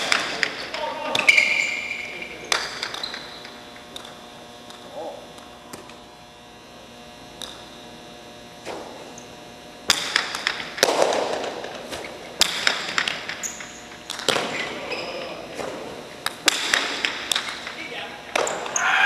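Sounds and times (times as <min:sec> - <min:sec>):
faint steady hum: 0:00.0 - 0:19.0
ball cracking off walls: 0:09.9 - 0:18.8.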